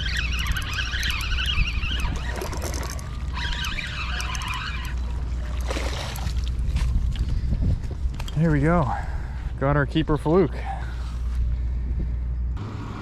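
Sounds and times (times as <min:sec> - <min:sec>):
high wavering chirps: 0:00.0 - 0:05.6
wind buffeting microphone: 0:00.0 - 0:10.2
fish splashing at surface: 0:05.4 - 0:06.6.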